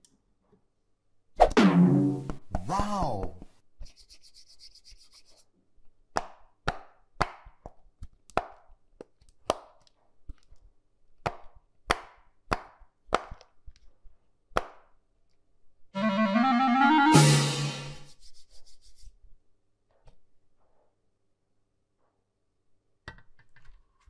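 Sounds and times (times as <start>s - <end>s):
pitched music-like tone: 16.0s - 18.1s.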